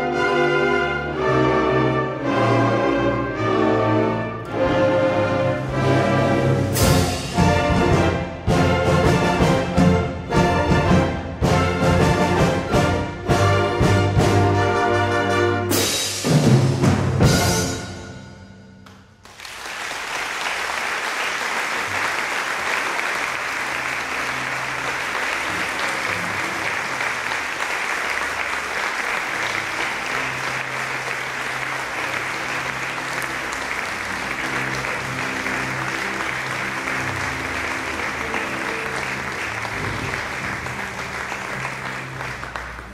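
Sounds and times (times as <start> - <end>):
audience applause: 19.2 - 42.9.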